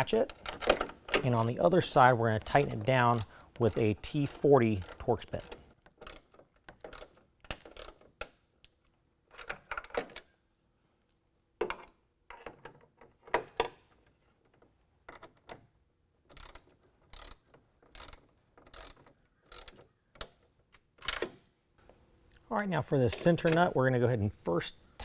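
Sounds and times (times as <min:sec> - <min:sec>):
hand ratchet clicking: 0:00.2 - 0:08.4, 0:16.3 - 0:20.3.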